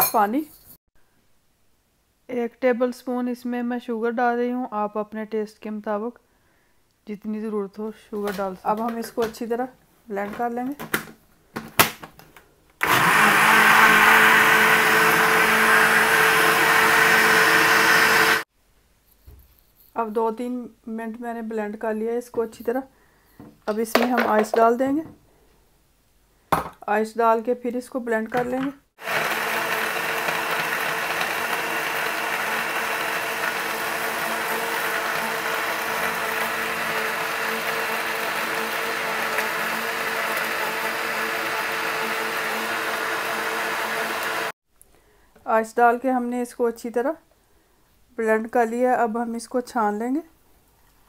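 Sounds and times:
blender motor running: 0:12.8 - 0:18.4, 0:29.0 - 0:44.6.

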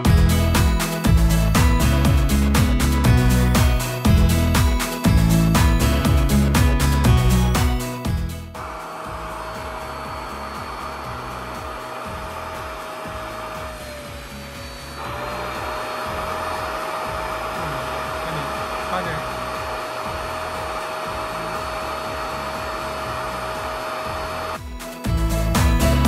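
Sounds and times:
suction motor whining: 0:08.5 - 0:26.0.

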